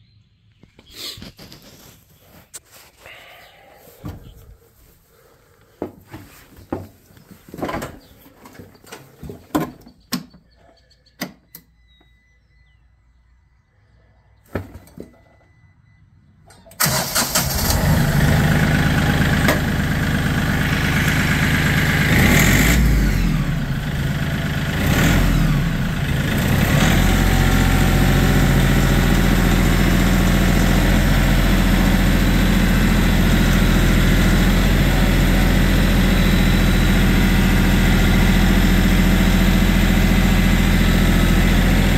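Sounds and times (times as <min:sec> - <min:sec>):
clicks and knocks from controls: 0:11.2 - 0:12.1
diesel engine starting and idling: 0:15.2 - 0:41.9.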